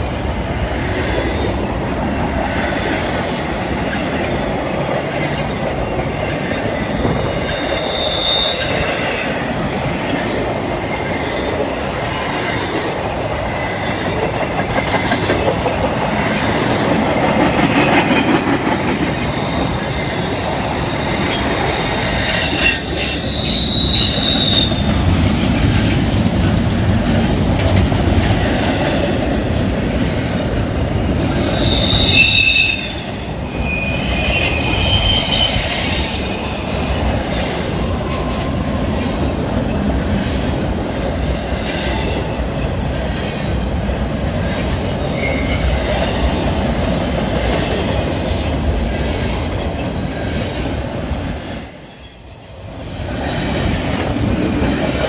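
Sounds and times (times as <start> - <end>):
train wheels rumbling on rail: 0.0 - 55.0
high-pitched wheel squeals: 6.8 - 9.3, 19.2 - 24.9, 31.3 - 39.6, 45.1 - 47.5, 48.6 - 53.6.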